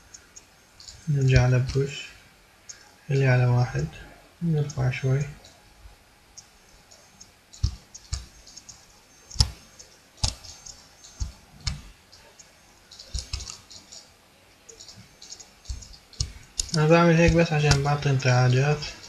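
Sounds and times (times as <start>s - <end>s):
keyboard and mouse clicking: 0.1s - 2.0s, 6.4s - 14.1s, 14.7s - 19.0s.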